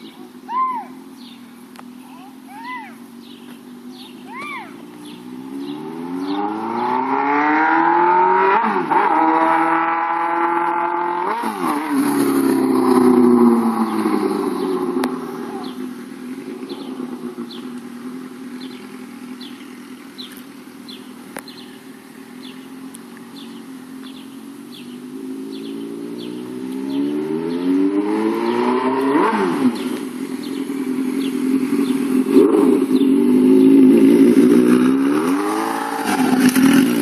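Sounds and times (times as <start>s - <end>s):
motorcycle engine revving: 0.0s - 37.0s.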